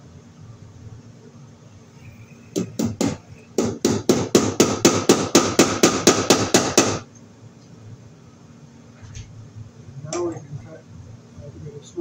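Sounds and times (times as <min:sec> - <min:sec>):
hammer striking wooden board: 0:02.6 - 0:07.0.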